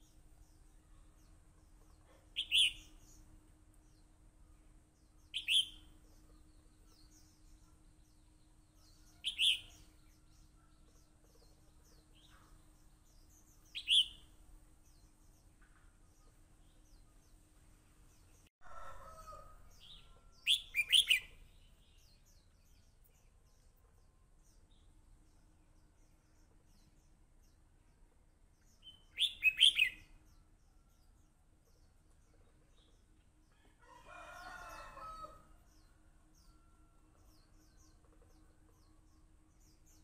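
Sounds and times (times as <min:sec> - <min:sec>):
faint lower bird calls: 0:05.3 - 0:05.9.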